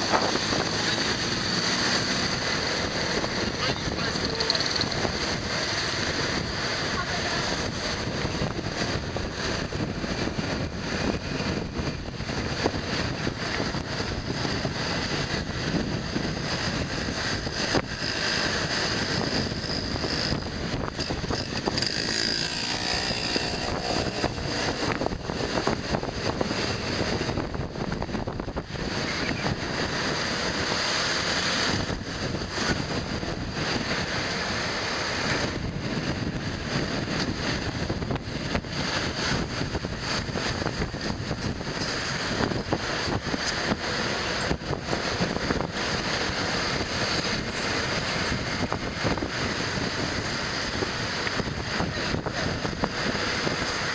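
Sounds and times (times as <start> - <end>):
scooter engine: 0.0 - 35.5
street traffic noise: 0.0 - 53.9
wind buffeting microphone: 0.0 - 53.9.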